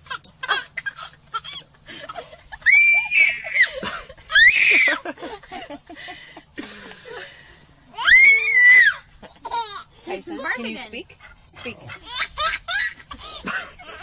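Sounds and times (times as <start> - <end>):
baby shrieking: 2.6 - 5.0, 7.9 - 9.8, 12.0 - 13.6.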